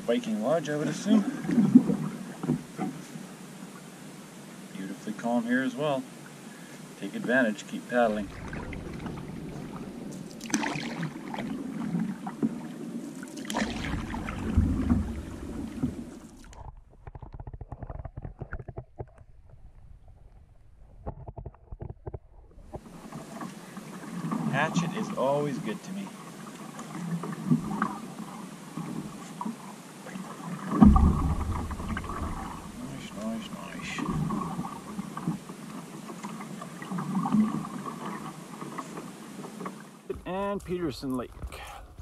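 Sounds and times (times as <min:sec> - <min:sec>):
paddle splashing water: 0:00.0 - 0:03.2, 0:06.5 - 0:19.1, 0:22.6 - 0:42.0
water lapping along hull: 0:00.0 - 0:42.0
wind rumble on microphone: 0:08.1 - 0:12.1, 0:13.7 - 0:23.3, 0:30.8 - 0:33.2
small splashes: 0:08.1 - 0:16.6.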